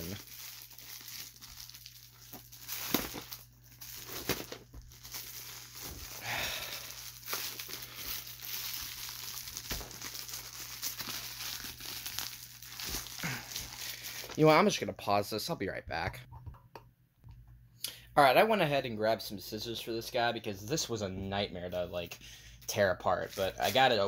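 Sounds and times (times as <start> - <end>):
plastic mailer crinkling: 0.0 - 14.5.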